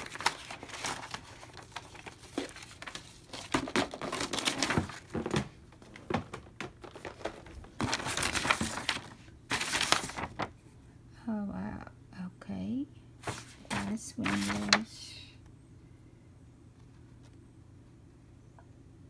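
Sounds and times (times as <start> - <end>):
paper rustling and crinkling: 0.0 - 10.7, 13.2 - 15.0.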